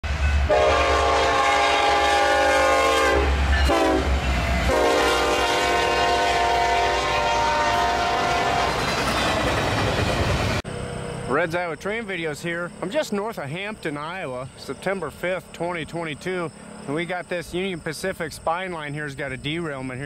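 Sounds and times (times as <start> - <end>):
train rumbling: 0.0 - 20.0
locomotive air horn blasts: 0.4 - 8.8.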